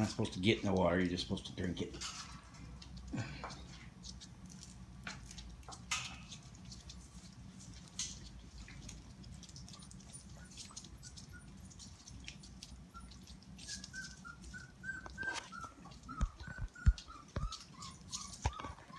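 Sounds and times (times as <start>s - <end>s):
puppies moving around dishes: 0.0s - 18.9s
puppies whimpering: 8.8s - 18.9s.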